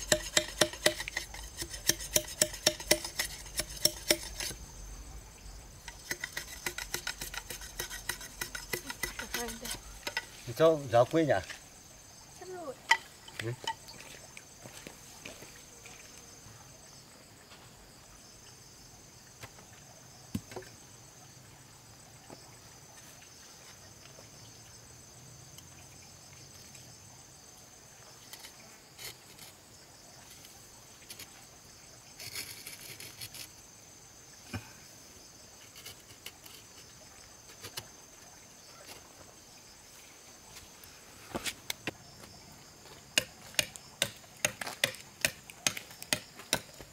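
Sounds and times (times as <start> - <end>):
crickets trilling: 0.0 - 46.9.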